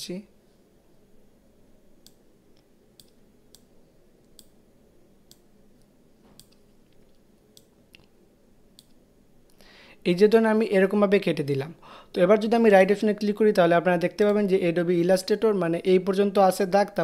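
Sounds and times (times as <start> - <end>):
low room hum: 0.0 - 17.0
faint irregular clicks: 2.0 - 4.6, 5.2 - 9.6.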